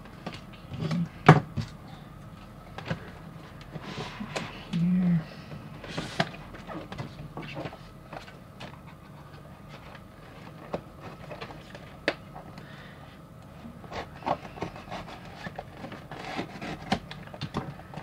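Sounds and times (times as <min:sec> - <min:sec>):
cardboard rubbing and scraping: 0:13.7 - 0:17.1.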